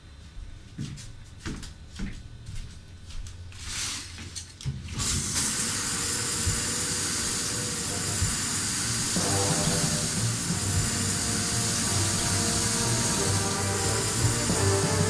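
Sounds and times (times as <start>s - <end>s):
shower water spraying: 5.0s - 15.0s.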